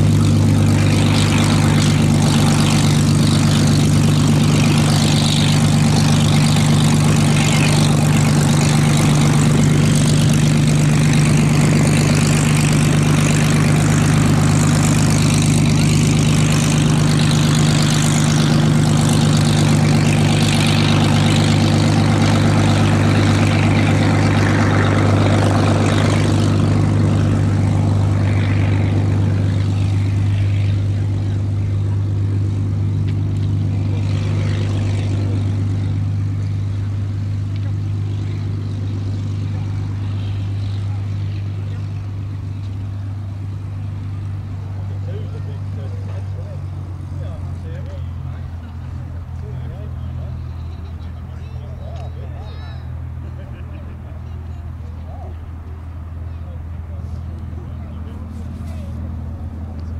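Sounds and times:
propeller plane engine idling: 0.0 - 59.9.

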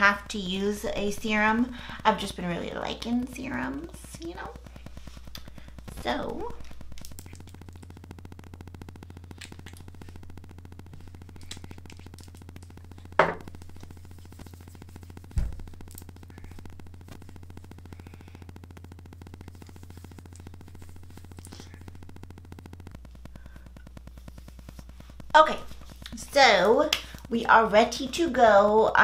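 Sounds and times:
steady low hum: 0.0 - 29.0
dull thump: 15.3 - 15.7.

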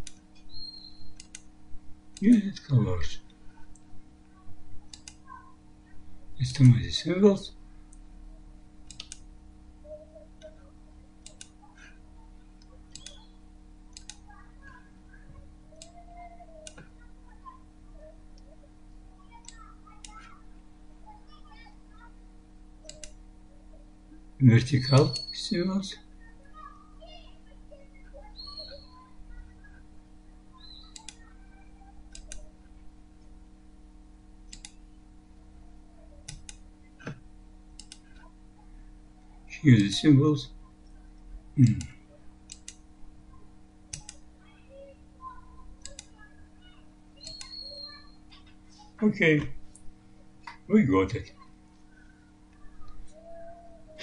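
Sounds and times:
faint steady hum: 0.0 - 54.0
computer mouse clicking: 1.2 - 1.5, 4.9 - 5.2, 8.8 - 9.3, 11.2 - 11.6, 12.9 - 13.2, 13.9 - 14.3, 22.9 - 23.2, 30.6 - 31.2, 32.1 - 32.4, 34.5 - 34.8, 36.2 - 37.2, 37.8 - 38.3, 42.5 - 42.8, 43.9 - 44.2, 45.8 - 46.2, 47.2 - 47.8.

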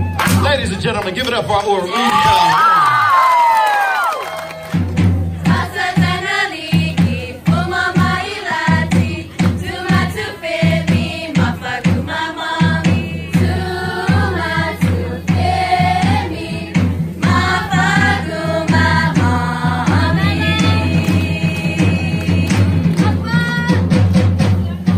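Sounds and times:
quick drum and bass beat: 0.1 - 1.5, 4.4 - 24.9
voices singing: 5.3 - 24.9.

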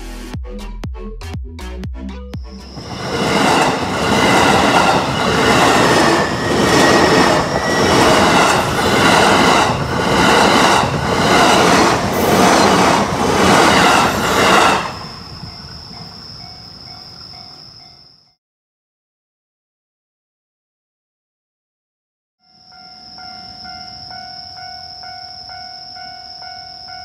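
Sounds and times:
faint steady high tone: 15.0 - 18.4, 22.4 - 27.0.

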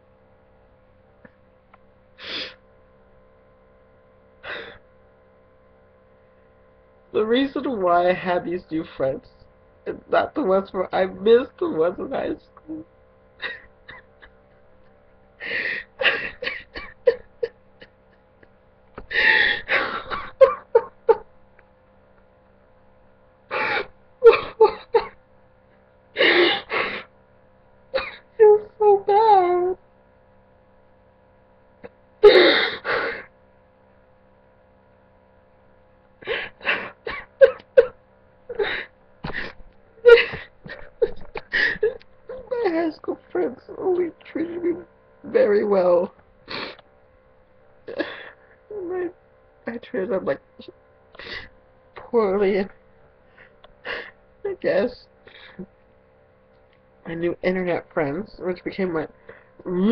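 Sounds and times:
man sobbing: 13.4 - 14.4, 15.4 - 18.0, 19.1 - 21.3, 23.5 - 25.2, 26.2 - 27.1, 32.2 - 33.3, 38.5 - 42.7.

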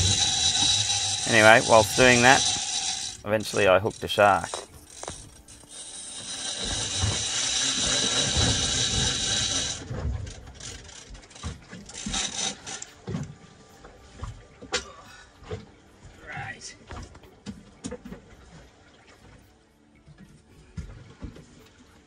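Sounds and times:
fishing reel drag buzzing: 0.0 - 12.9.

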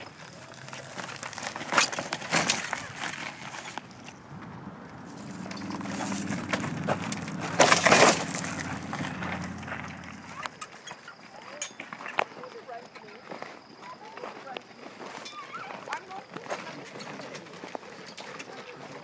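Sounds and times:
handcart rolling over gravel: 0.0 - 10.8, 11.8 - 19.0
handcart knocking over bumps: 1.0 - 10.6.

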